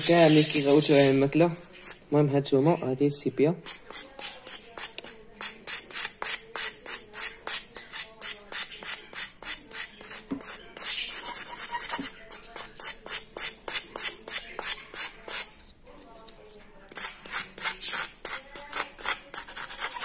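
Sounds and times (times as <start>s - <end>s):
fork scraping cuttlebone: 0.0s - 2.1s, 3.6s - 20.0s.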